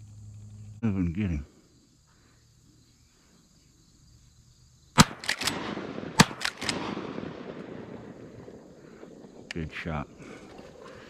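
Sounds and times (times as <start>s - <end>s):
gunshot echo: 5.0s - 9.5s
shotgun blasts: 5.0s - 9.5s.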